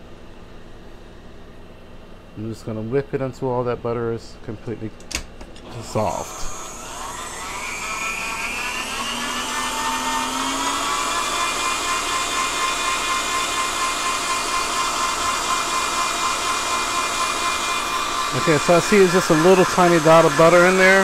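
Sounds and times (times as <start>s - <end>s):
stand mixer motor whining: 5.6s - 21.0s.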